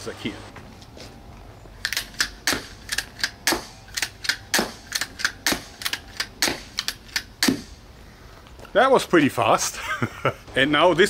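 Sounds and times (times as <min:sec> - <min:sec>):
cocking rod clacks: 0:01.8 - 0:07.6
crossbow firing snap: 0:01.9 - 0:07.8.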